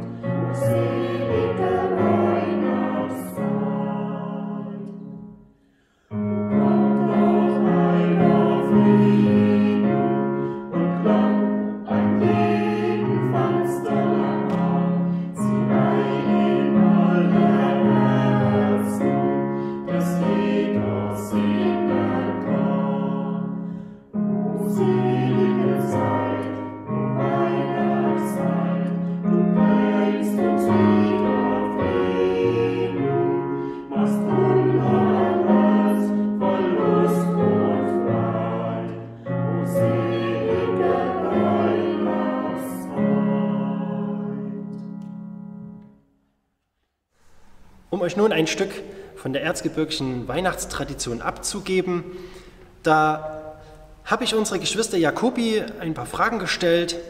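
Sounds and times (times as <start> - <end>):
mixed choir singing: 0.0 - 5.4, 6.4 - 45.0
piano accompaniment: 0.0 - 46.2.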